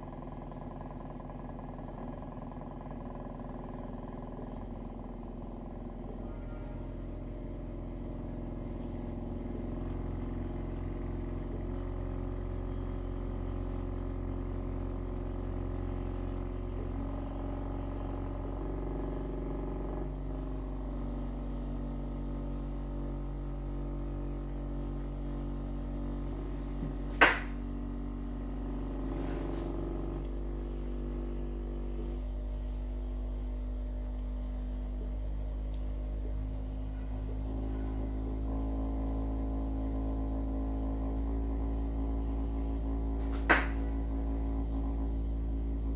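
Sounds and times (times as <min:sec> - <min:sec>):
constant low hum: 0:00.0 - 0:45.9
subwoofer playing low tones: 0:00.0 - 0:45.9
sharp click: 0:27.1 - 0:27.5, 0:43.3 - 0:43.8.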